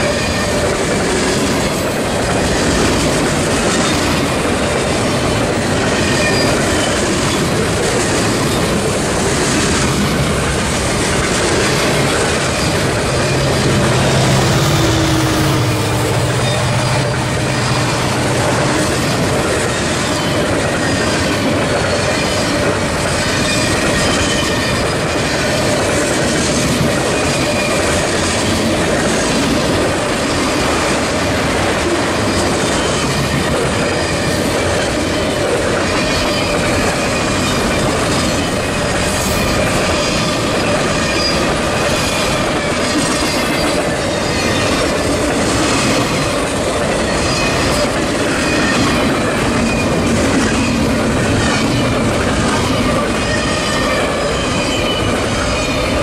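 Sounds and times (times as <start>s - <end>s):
freight train rumble: 0.0s - 56.0s
steel wheels clattering over rail joints: 0.0s - 56.0s
high wheel squeal: 5.9s - 7.5s, 11.6s - 22.7s, 46.9s - 56.0s.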